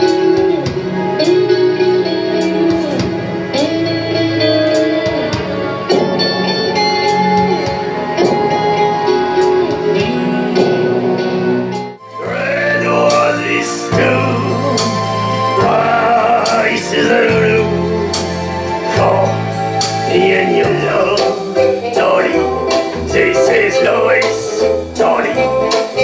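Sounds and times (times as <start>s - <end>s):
sliding held music notes: 12.0s - 26.0s.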